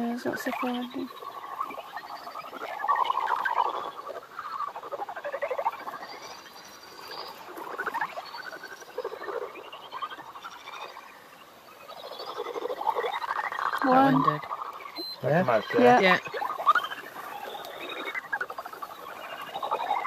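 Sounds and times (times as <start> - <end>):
bat calls through bat detector: 13.8 - 18.6.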